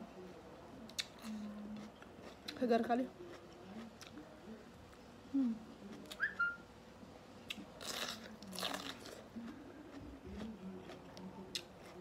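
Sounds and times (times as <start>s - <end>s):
person chewing food: 0.9s - 2.6s, 7.4s - 12.0s.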